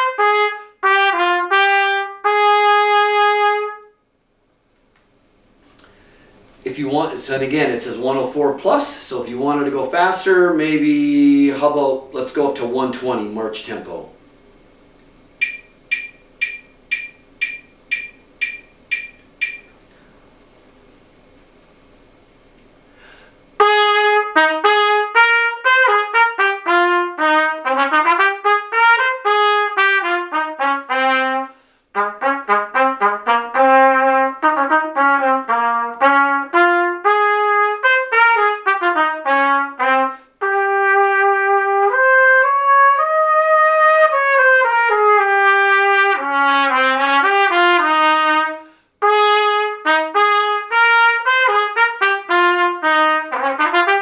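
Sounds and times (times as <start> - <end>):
solo trumpet playing: 0.0 - 4.0, 23.6 - 54.0
player breathing: 5.7 - 6.4, 22.9 - 23.4, 48.6 - 49.0.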